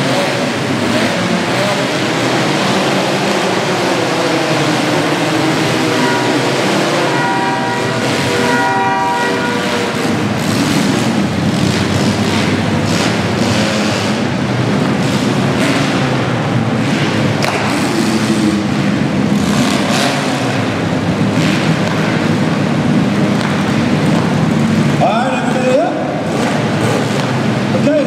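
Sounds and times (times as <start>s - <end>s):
car engines revving: 0.0s - 28.0s
steady horn: 5.5s - 10.4s.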